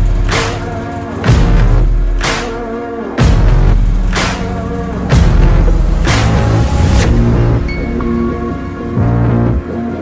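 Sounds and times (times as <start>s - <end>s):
deep sustained bass: 0.0s - 10.0s.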